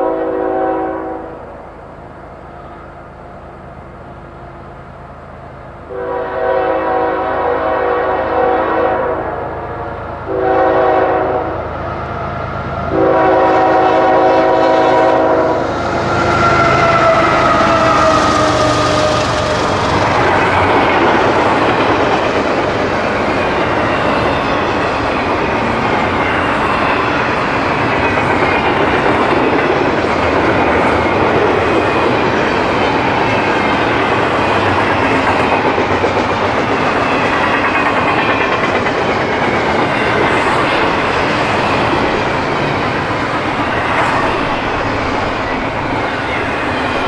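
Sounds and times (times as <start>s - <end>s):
locomotive horn blasts: 0.0s - 1.4s, 5.9s - 11.7s, 12.9s - 18.4s
train rumble and wheel clatter: 0.0s - 47.0s.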